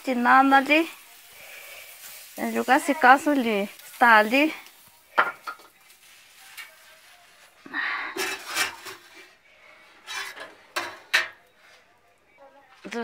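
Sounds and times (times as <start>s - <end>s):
kitchen knocks and clatter: 5.2s - 5.8s, 8.1s - 9.3s, 10.1s - 11.5s.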